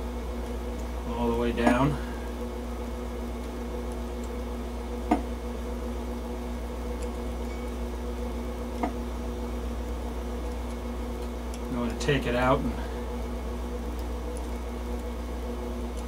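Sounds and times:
steady shop hum: 0.0 - 16.0.

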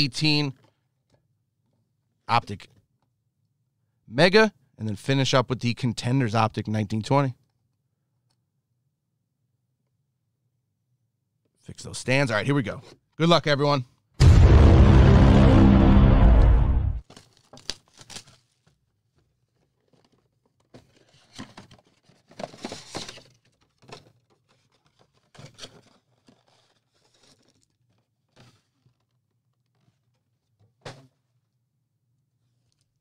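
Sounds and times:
loud music: 14.2 - 17.0
wrappers tearing and crinkling: 17.0 - 18.8, 24.5 - 28.1.

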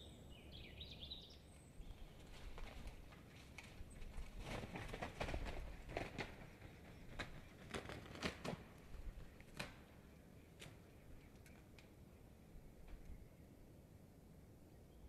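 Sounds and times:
dry twigs crackling: 1.9 - 11.9.

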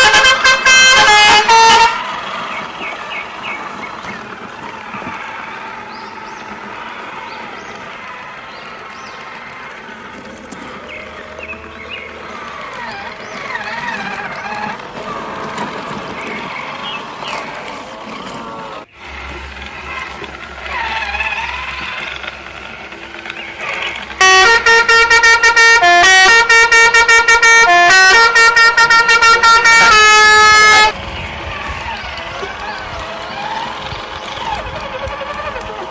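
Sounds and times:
horn playing tune in short toots: 0.0 - 2.1, 24.2 - 31.0.

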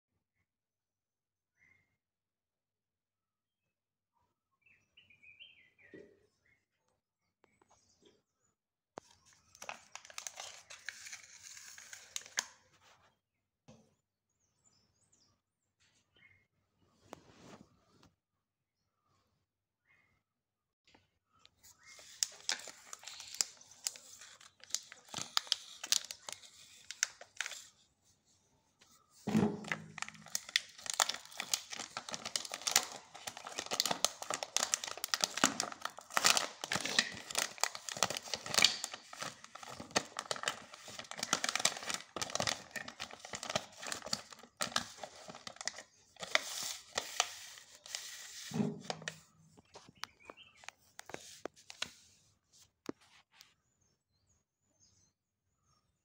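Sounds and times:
wrapper and foil crinkling: 9.4 - 12.6, 21.8 - 27.7, 29.1 - 49.8.

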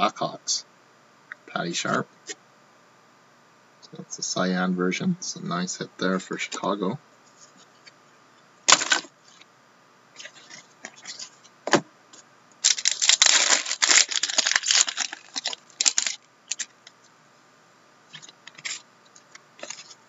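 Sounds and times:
wrapper being torn and crinkled: 8.7 - 9.1, 12.6 - 16.7.

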